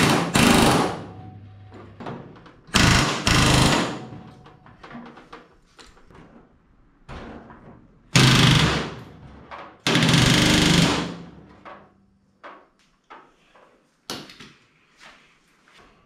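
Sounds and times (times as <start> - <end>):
pneumatic rivet gun hammering: 2.7 - 4.1, 8.2 - 9.0, 9.9 - 11.2.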